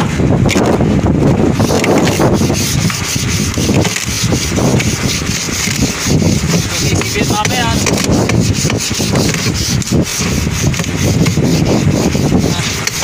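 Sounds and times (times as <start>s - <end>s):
wood scraping and rubbing: 0.5s - 13.0s.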